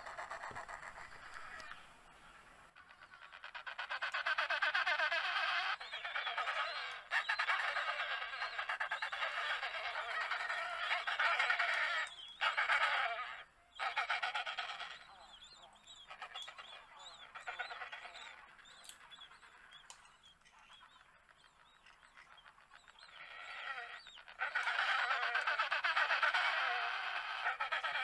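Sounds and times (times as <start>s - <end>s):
penguins squawking: 0.0s - 1.8s, 2.8s - 15.0s, 22.4s - 28.0s.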